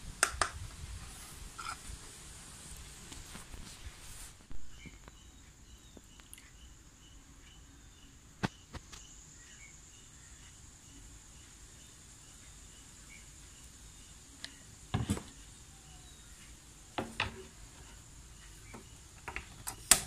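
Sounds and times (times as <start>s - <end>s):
sharp clicks: 0.2s - 0.6s
insects chirping: 4.4s - 20.0s.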